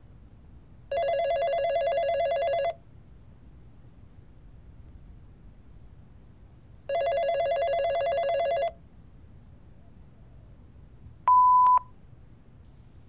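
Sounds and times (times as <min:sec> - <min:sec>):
landline telephone ringing: 0:00.9 - 0:02.8, 0:06.9 - 0:08.8
answering machine beep: 0:11.3 - 0:11.9.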